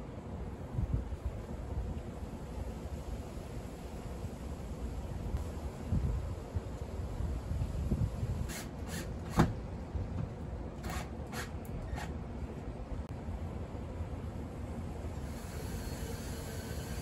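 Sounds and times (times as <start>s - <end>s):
wind rumble on microphone: 0.4s - 8.6s.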